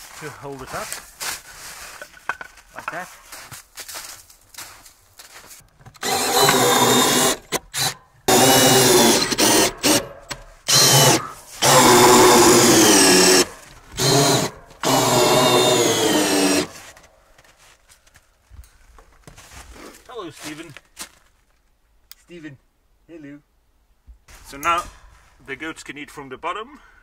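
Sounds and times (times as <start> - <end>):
cordless drill driving screws: 6.0 - 17.0.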